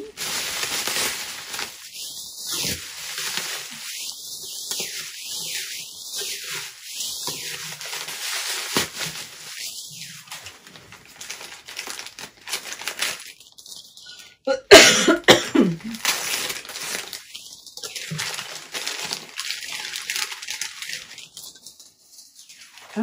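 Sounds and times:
tissue paper crinkling: 0.0s - 14.3s, 15.6s - 23.0s
person coughing: 14.5s - 16.0s.

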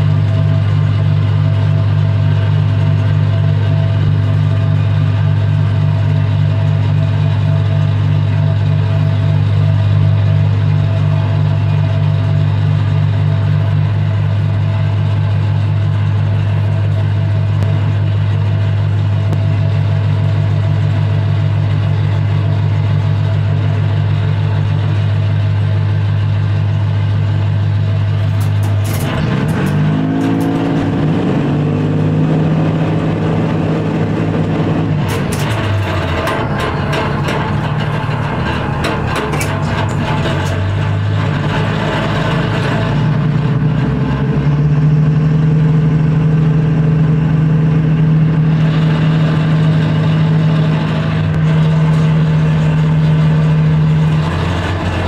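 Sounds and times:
diesel engine droning: 0.0s - 55.0s
clicks: 28.2s - 31.0s.

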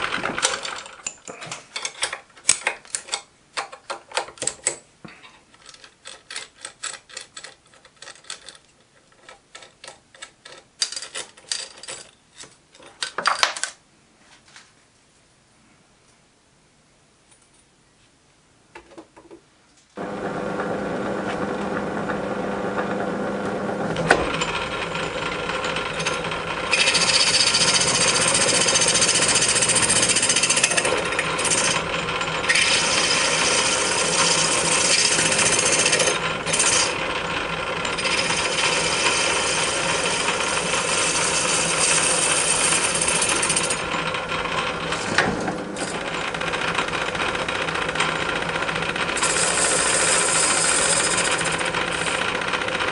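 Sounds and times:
metal lathe motor hum: 20.0s - 52.9s.

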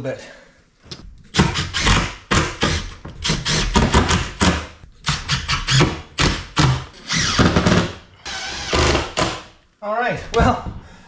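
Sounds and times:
power driver driving screws into wood: 1.3s - 9.4s.

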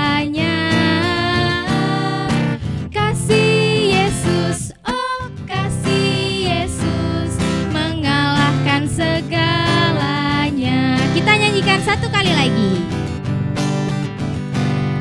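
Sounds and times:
women singing into microphones: 0.0s - 11.8s
acoustic guitar: 0.0s - 15.0s.

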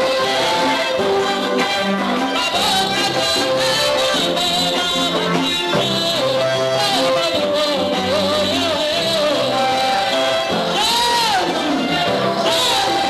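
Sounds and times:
instrumental backing: 0.0s - 13.0s
choir singing: 9.7s - 13.0s.

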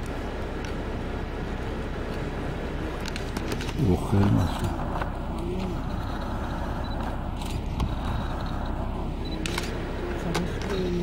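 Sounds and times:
low rumble: 4.0s - 11.0s.

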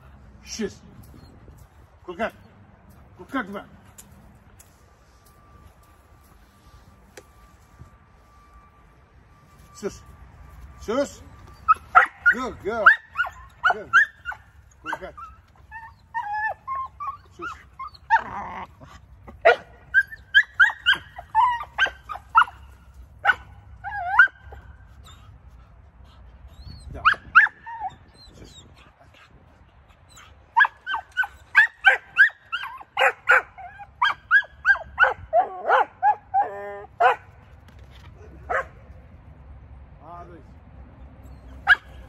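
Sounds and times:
puppy barking and yipping: 11.5s - 18.7s, 19.3s - 25.2s, 27.0s - 29.3s, 29.9s - 37.3s, 38.5s - 38.8s, 41.3s - 42.0s.

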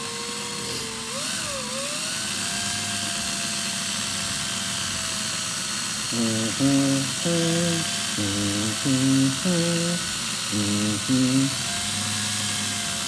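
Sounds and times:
cordless drill running: 0.0s - 13.0s
person humming: 6.1s - 11.8s.

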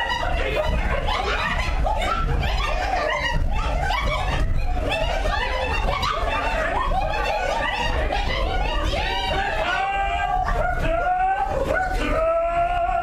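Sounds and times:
group of voices calling: 0.0s - 13.0s
people laughing: 0.0s - 13.0s.

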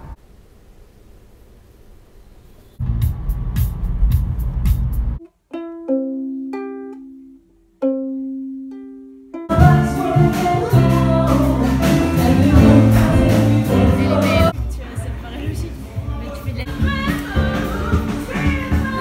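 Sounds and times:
ukulele picked single notes: 5.2s - 14.5s
full-band music with heavy bass: 9.5s - 14.6s, 16.7s - 19.0s.

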